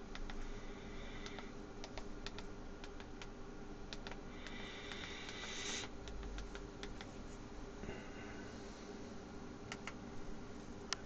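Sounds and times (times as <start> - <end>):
steady low hum: 0.0 - 11.0
keyboard keys clicking: 0.1 - 0.4, 1.2 - 3.3, 3.9 - 7.2, 9.7 - 10.0.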